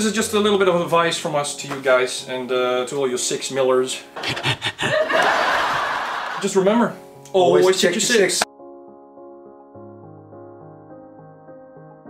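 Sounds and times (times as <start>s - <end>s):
soft keyboard music: 0.0s - 12.0s.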